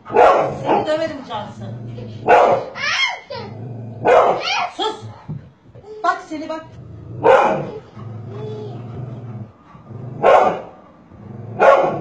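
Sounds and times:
dog barking: 0:00.0 - 0:01.0, 0:02.2 - 0:02.8, 0:04.0 - 0:04.8, 0:07.2 - 0:07.8, 0:10.2 - 0:10.8, 0:11.6 - 0:12.0
dog growling: 0:00.0 - 0:02.4, 0:03.4 - 0:05.6, 0:06.5 - 0:12.0.

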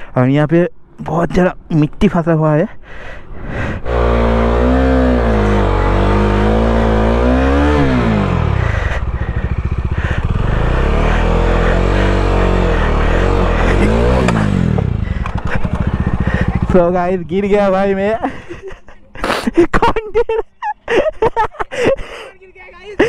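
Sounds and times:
motorcycle engine revving: 0:03.5 - 0:18.0.

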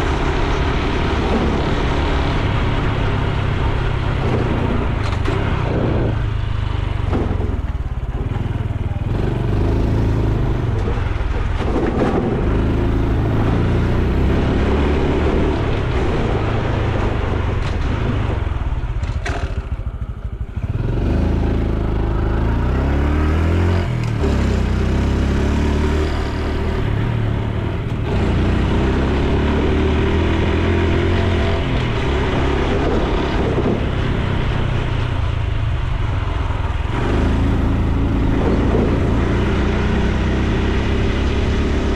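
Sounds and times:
motorcycle engine accelerating: 0:00.0 - 0:41.9.

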